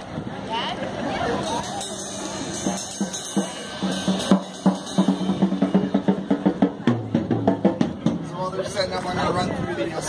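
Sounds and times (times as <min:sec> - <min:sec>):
rock band playing: 0:01.8 - 0:08.2
drum kit beating fast rhythm: 0:01.8 - 0:08.6.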